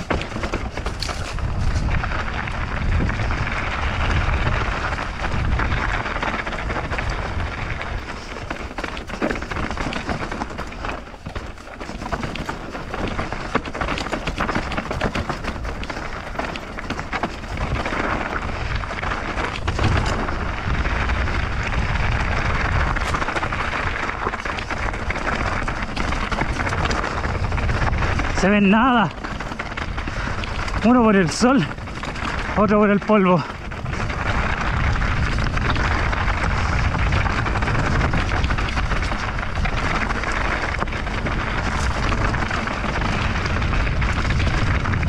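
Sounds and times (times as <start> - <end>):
bike clicks and rattles: 0.0 - 45.0
bike tyres on loose dirt: 0.0 - 45.0
wind buffeting microphone: 0.0 - 45.0.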